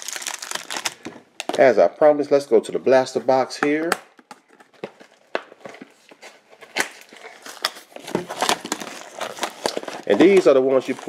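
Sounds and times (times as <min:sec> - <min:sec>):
cardboard and plastic crinkling: 0:00.0 - 0:01.7, 0:04.3 - 0:11.0.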